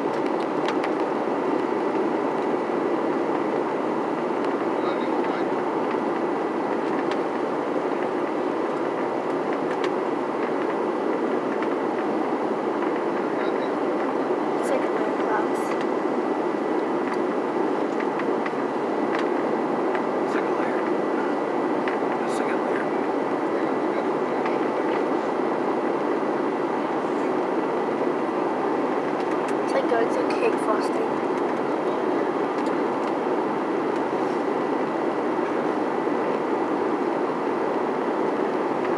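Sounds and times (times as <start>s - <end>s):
jet engines and rushing air: 0.0s - 38.9s.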